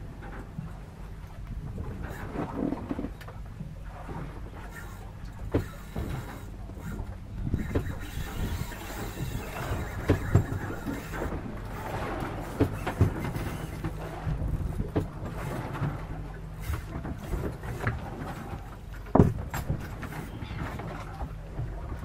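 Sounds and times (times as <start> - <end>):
fishing reel drag squealing: 4.6 - 14.1.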